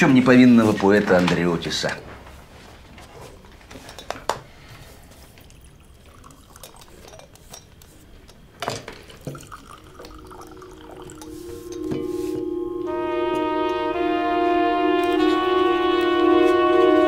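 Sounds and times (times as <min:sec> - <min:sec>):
held music tones: 0:09.8 - 0:17.0.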